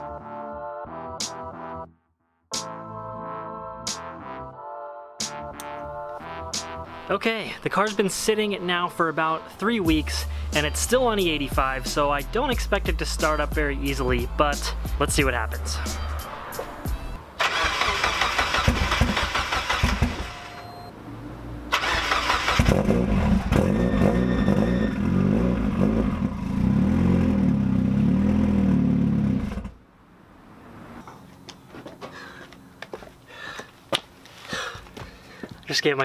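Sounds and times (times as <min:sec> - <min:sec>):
car engine cranking on starter: 0:17.4 - 0:20.8, 0:21.7 - 0:24.2.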